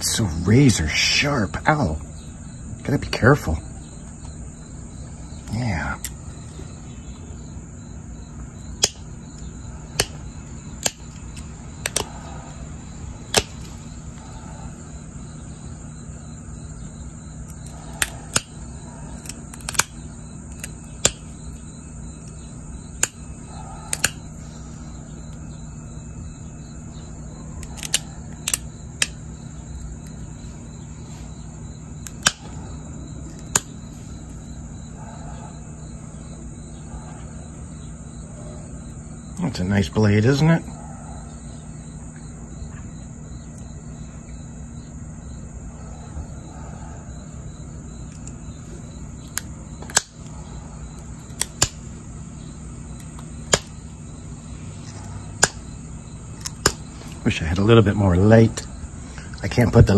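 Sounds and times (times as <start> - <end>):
stone flaking clicks: 8.8 - 12.3, 13.3 - 13.7, 17.4 - 21.6, 22.2 - 24.3, 27.6 - 29.2, 32.0 - 32.6, 33.3 - 33.7, 49.2 - 50.4, 51.2 - 51.8, 53.0 - 53.8, 54.8 - 55.6, 56.4 - 57.2.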